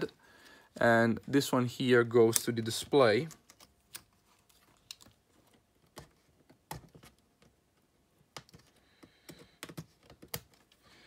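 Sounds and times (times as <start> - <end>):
small clicks on plastic connectors: 3.2 - 7.5, 8.3 - 10.8.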